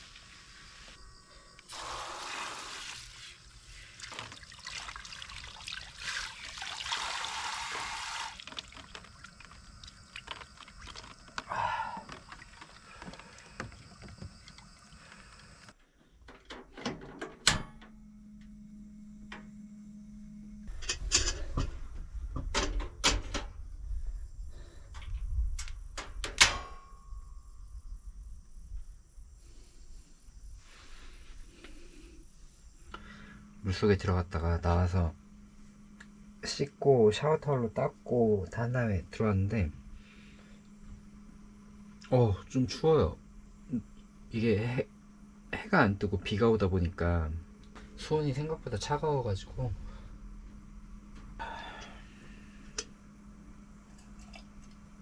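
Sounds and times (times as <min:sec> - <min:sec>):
water splashing and pouring: 0:01.7 - 0:15.2.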